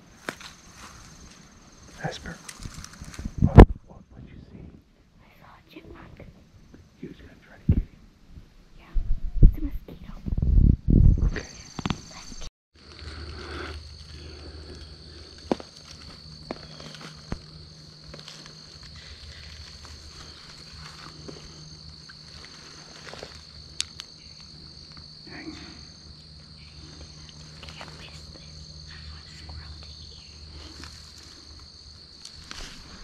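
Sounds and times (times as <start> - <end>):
pulsing insect call: 0.0 - 4.4, 11.0 - 33.0
high insect drone: 0.0 - 4.5, 11.0 - 33.0.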